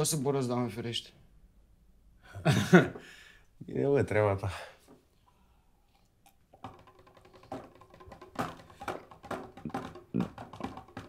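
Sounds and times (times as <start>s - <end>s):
hand drum taps and slaps: 6.6s - 11.0s.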